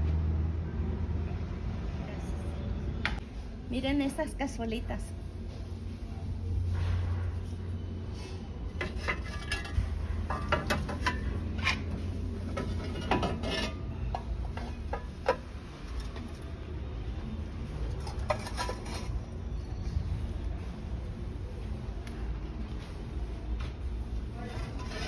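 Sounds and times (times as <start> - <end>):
clay pots clinking: 8.7 - 16.3.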